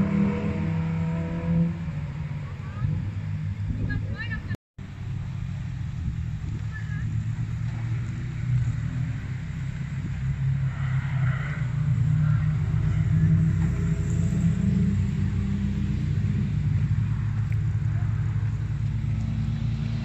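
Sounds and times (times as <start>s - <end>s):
car engine droning: 0.0s - 20.0s.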